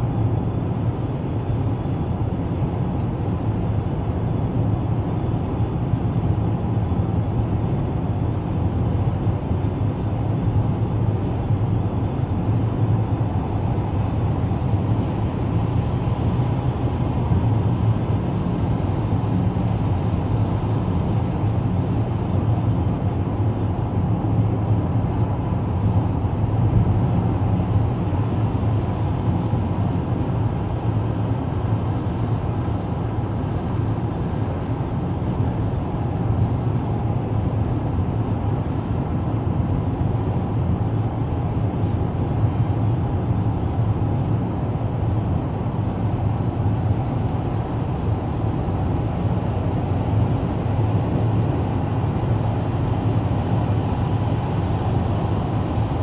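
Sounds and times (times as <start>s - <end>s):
car cabin road drone: 0.0s - 56.0s.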